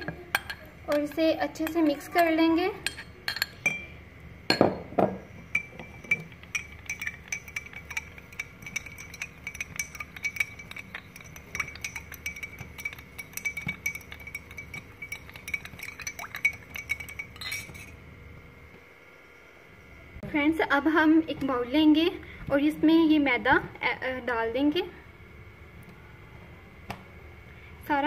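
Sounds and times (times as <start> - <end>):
spoon clinking against glass: 2.8 - 3.9, 4.5 - 18.0.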